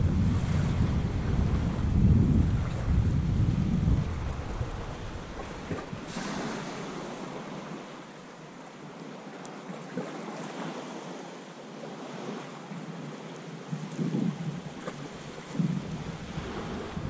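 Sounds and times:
small waves washing on rocks: 0:04.0 - 0:08.1.

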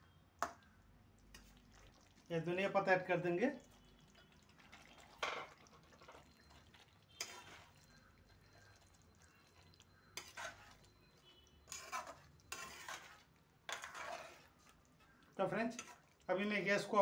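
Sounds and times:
metal spatula scraping pan: 0:05.2 - 0:16.2.

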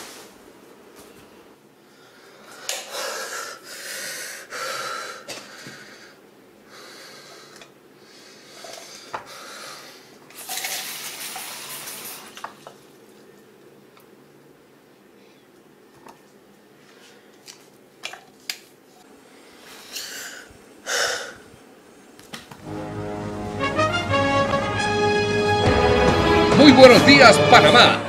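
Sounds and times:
man gasping breaths: 0:01.9 - 0:10.2.

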